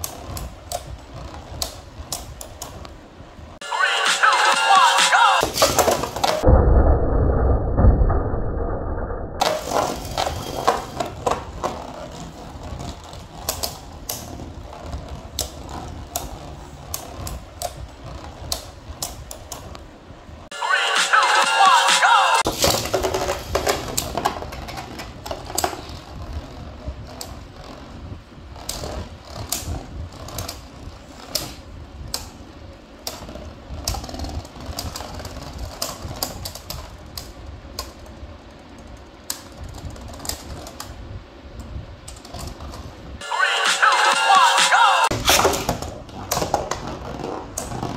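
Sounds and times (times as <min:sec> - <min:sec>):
spinning tops rumbling on plastic: 0:09.4 - 0:19.8, 0:22.4 - 0:41.6.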